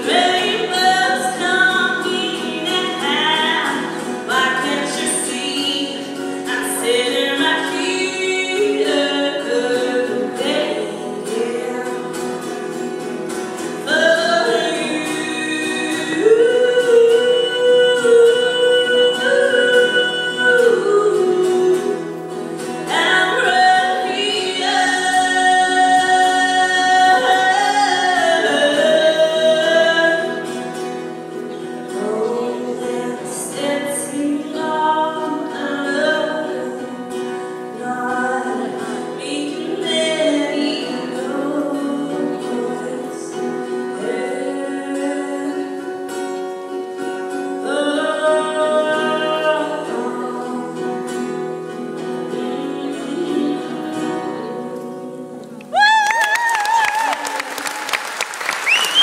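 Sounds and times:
woman singing: 0.0s - 58.0s
acoustic guitar: 0.0s - 59.0s.

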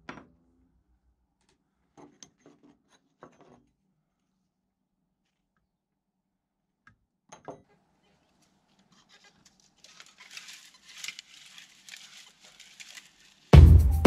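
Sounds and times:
footsteps in dry grass: 9.8s - 14.0s
music: 13.5s - 14.0s.

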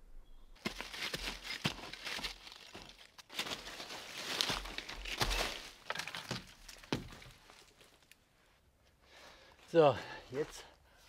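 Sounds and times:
footsteps crunching through dry leaves: 0.6s - 8.0s.

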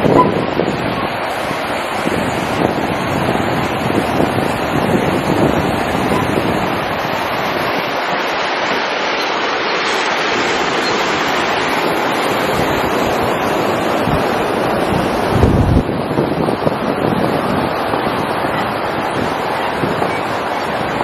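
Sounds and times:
river water rushing over rocks: 0.0s - 21.0s
wind rumbling on microphone: 0.0s - 21.0s.

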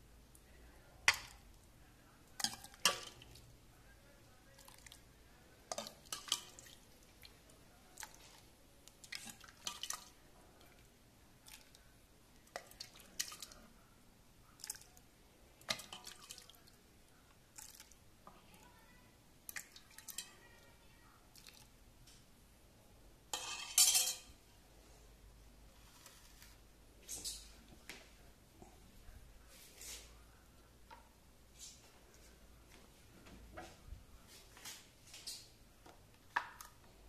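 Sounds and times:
soup dripping and splashing: 5.7s - 7.4s, 8.0s - 10.7s, 11.4s - 11.8s, 12.4s - 13.6s, 14.6s - 15.0s, 15.6s - 16.8s, 17.5s - 18.0s, 19.5s - 20.3s, 21.3s - 21.7s.

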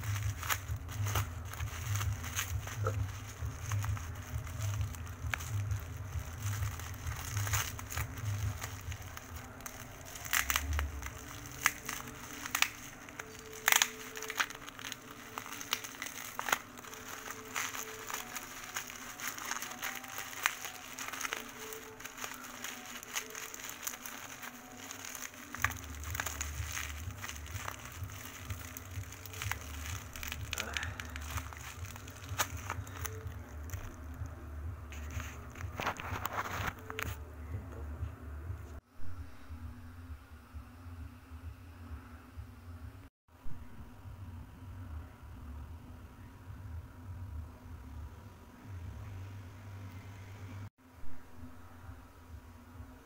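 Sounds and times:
bubble wrap cracks: 0.0s - 34.3s, 34.9s - 37.2s
bubble wrap crinkling: 0.0s - 37.2s.

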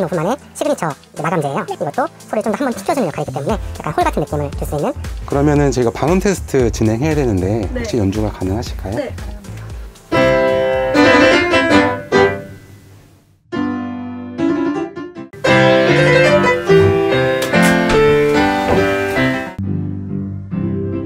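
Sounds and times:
upright piano playing chords: 3.6s - 12.9s, 13.5s - 21.0s.

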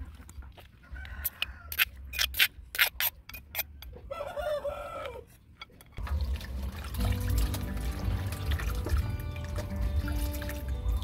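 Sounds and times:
rooster crowing: 0.8s - 1.9s, 4.0s - 5.3s.

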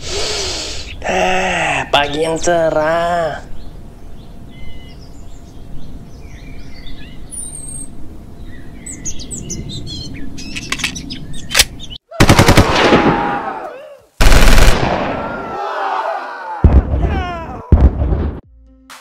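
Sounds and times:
outdoor background: 0.0s - 19.0s
birds chirping: 1.8s - 12.1s
machine-gun fire: 12.2s - 13.2s, 14.2s - 15.2s.

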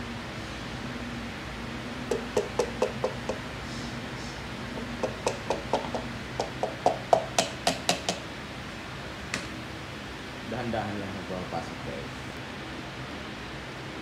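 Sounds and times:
tool tapping a piston: 2.1s - 3.4s, 4.7s - 8.3s.

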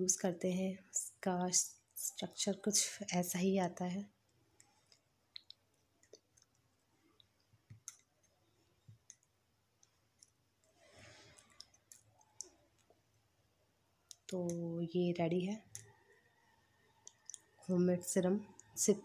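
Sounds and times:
fingers stirring gel clicks: 4.6s - 10.8s, 11.4s - 13.0s, 14.1s - 14.6s, 15.6s - 18.9s.

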